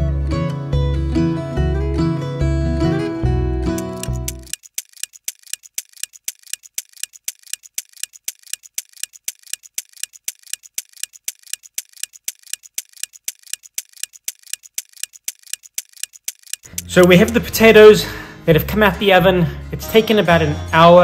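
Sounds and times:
clock ticking fast: 0:03.7 - 0:19.0.

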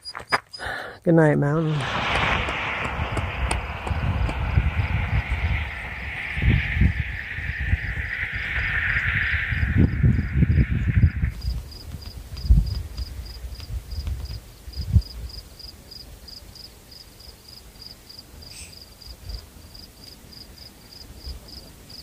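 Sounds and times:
low thumps: 0:01.6 - 0:12.8
cricket chirping: 0:03.7 - 0:14.0.

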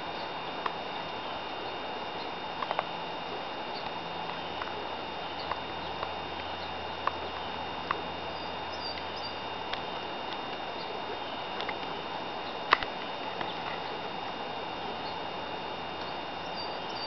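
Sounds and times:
steady outdoor hiss: 0:00.0 - 0:17.0
small birds chirping: 0:03.6 - 0:04.6, 0:05.3 - 0:09.8, 0:10.6 - 0:11.5, 0:12.4 - 0:12.7, 0:14.8 - 0:15.4, 0:16.0 - 0:17.0.

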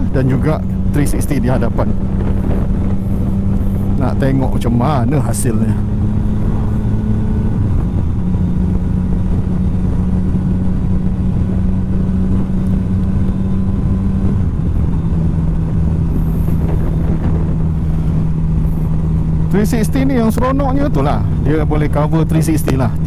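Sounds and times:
motorcycle engine cruising: 0:00.0 - 0:23.0
wind rushing past microphone: 0:00.0 - 0:23.0.

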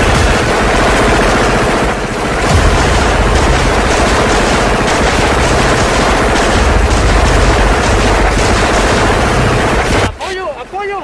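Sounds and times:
automatic gunfire bursts: 0:02.4 - 0:10.1
single gunshots: 0:02.4 - 0:10.1.

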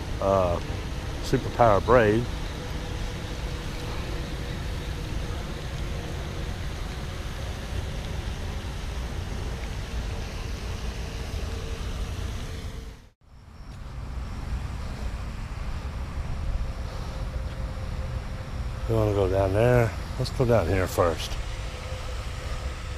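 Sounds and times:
low outdoor rumble: 0:00.0 - 0:22.9.

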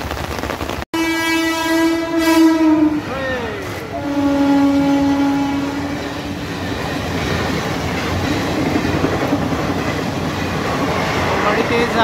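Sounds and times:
train rumbling past: 0:00.0 - 0:12.0
train horn: 0:01.0 - 0:06.5
wheels clattering over rails: 0:06.0 - 0:12.0.

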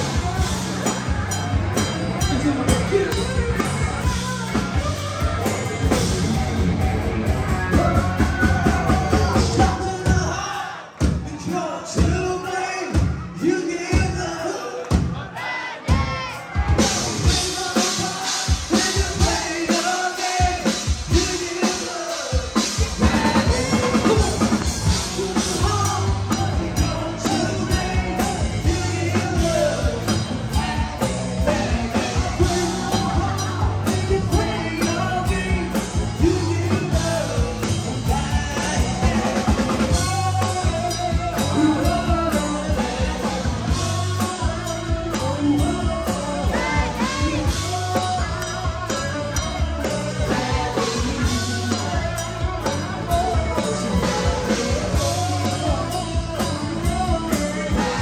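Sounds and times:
person singing: 0:00.0 - 0:58.0
rock band playing live: 0:00.0 - 0:58.0.

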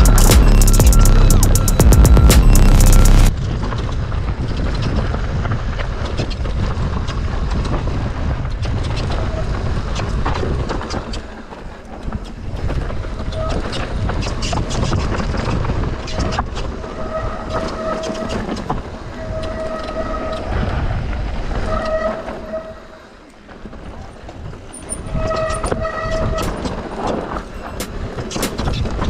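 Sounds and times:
wind rumble on camera: 0:03.3 - 0:29.0
disc brakes squealing: 0:16.0 - 0:20.6, 0:24.7 - 0:29.0.

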